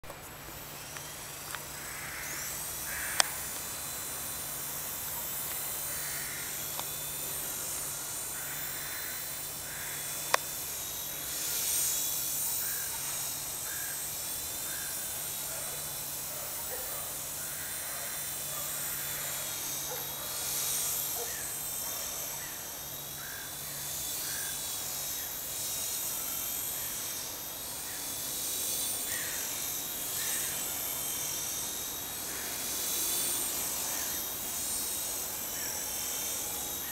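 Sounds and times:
rc helicopter motor whine: 0.0 - 36.9
sharp clicks: 3.1 - 3.6.

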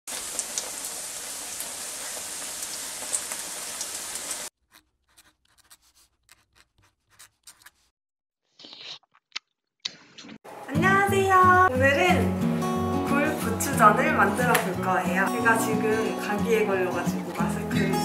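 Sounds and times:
pancake sizzling in oil: 0.1 - 4.5.

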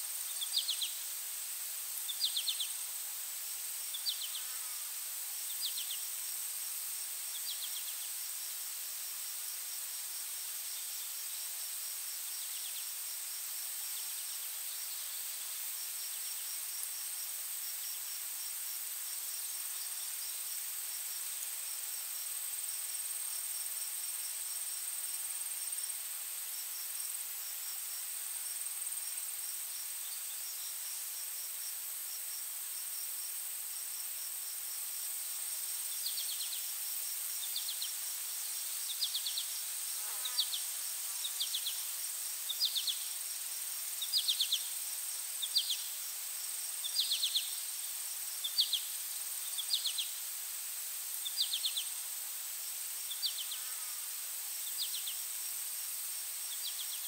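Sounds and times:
insects droning: 0.0 - 57.0
trilled insect chirps: 0.2 - 1.0, 2.0 - 2.8, 3.8 - 4.8, 35.8 - 50.2, 51.2 - 52.0, 53.0 - 55.2, 56.4 - 57.0.

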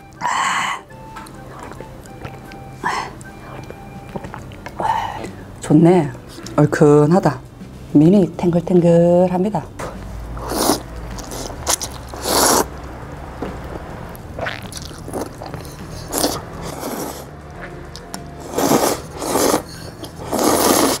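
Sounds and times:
quiet chewing: 1.0 - 5.5
person slurping noodles: 10.4 - 12.7, 14.4 - 17.3, 18.4 - 21.0.

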